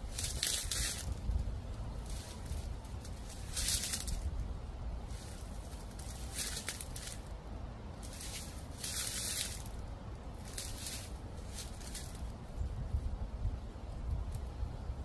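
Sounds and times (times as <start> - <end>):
footsteps crunching dry leaves: 0.0 - 7.4, 8.0 - 12.4
low wind rumble: 0.0 - 15.0.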